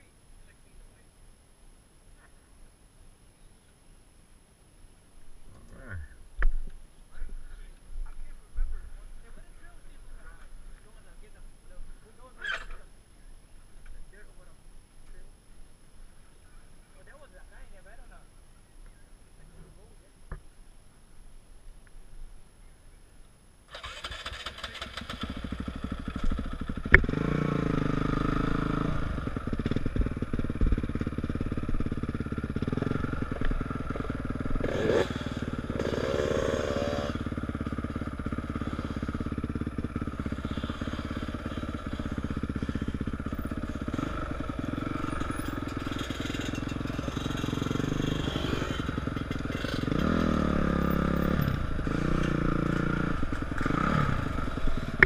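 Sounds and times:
dirt bike engine revving: 23.7s - 55.0s.

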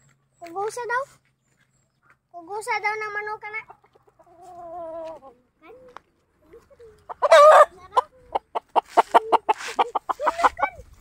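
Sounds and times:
chicken clucking: 3.5s - 5.5s, 6.4s - 11.0s
chicken squawking loudly: 7.1s - 10.6s.

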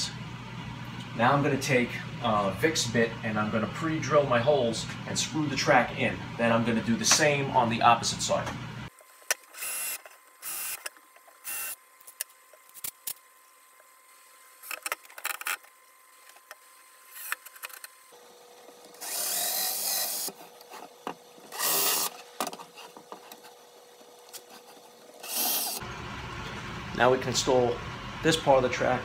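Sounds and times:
cordless drill bursts: 9.5s - 10.8s, 11.4s - 11.8s, 19.0s - 20.3s, 21.6s - 22.2s.

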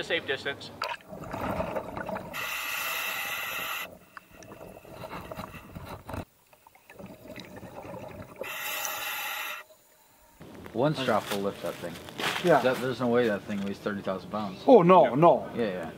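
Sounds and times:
bubbling of exhaled air: 0.8s - 10.4s
regulator breathing hiss: 2.3s - 6.2s, 8.4s - 10.4s.

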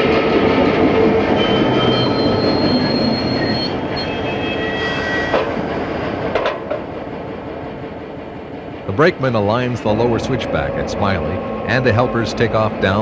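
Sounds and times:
rumble of train wheels: 0.0s - 13.0s
wheel flanges squealing: 1.0s - 6.9s, 8.9s - 13.0s.

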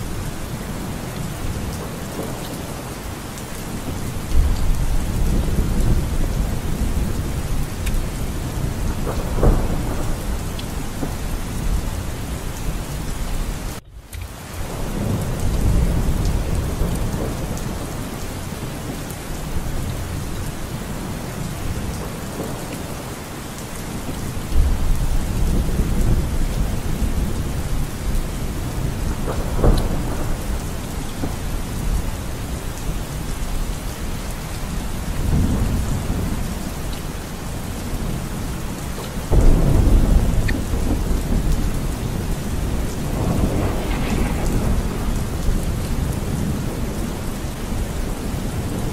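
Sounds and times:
thunder rumbling: 0.0s - 13.8s, 14.4s - 48.9s
steady rain: 0.0s - 48.9s.

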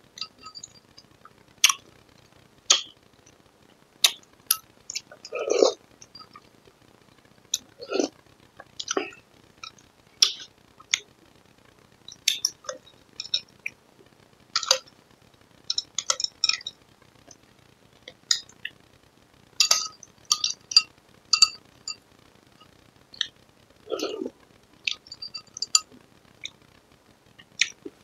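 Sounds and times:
slurping eating sounds: 5.3s - 5.8s
metal spoon clinking against glass: 19.6s - 21.6s.

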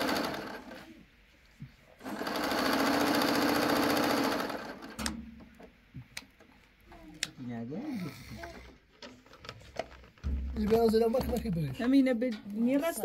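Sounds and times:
sewing machine stitching: 0.0s - 0.9s, 2.0s - 5.1s.

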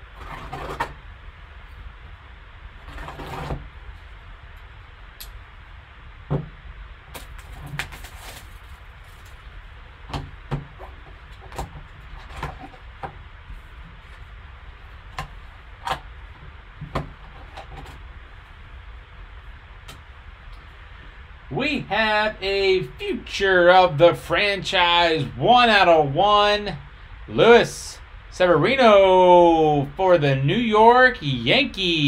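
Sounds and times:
plastic film and cardboard crackles: 7.1s - 9.7s
shrink wrap crinkling: 7.1s - 9.7s.

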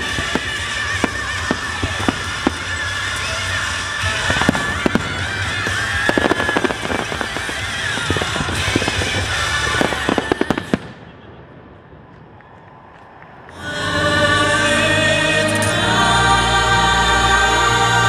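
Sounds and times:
loud show music: 0.0s - 10.8s, 13.6s - 18.0s
fireworks bangs and crackles: 0.0s - 12.4s.

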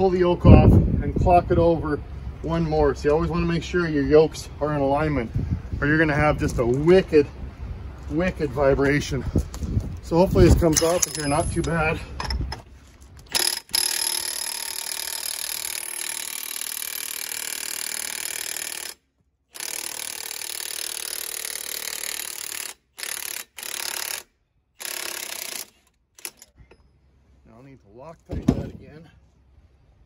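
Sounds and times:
impact wrench hammering: 13.3s - 19.0s, 24.8s - 26.6s.

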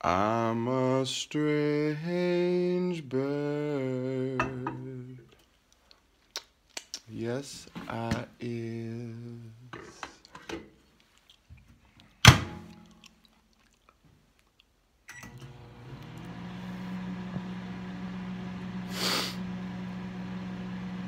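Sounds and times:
sharp thunk: 12.2s - 12.8s
rush of hiss: 18.9s - 19.4s.

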